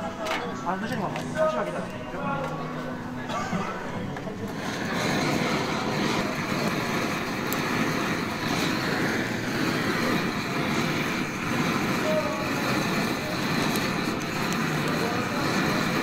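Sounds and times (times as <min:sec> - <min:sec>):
kitchen torch roaring: 0:00.0 - 0:16.0
food sizzling: 0:04.6 - 0:16.0.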